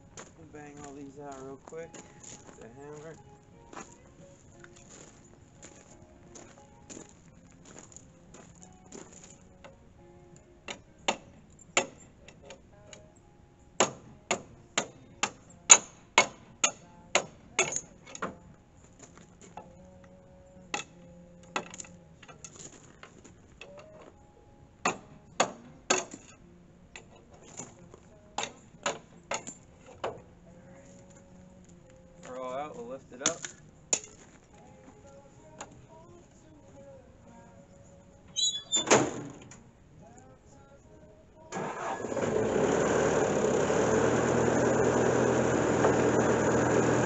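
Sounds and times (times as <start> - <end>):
hammer striking steel: 13.8 - 18.3.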